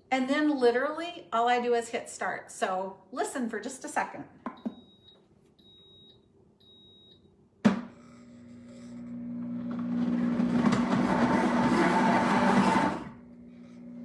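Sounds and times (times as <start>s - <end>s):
blender beeping: 7.9s - 14.0s
blender motor whirring: 8.0s - 14.0s.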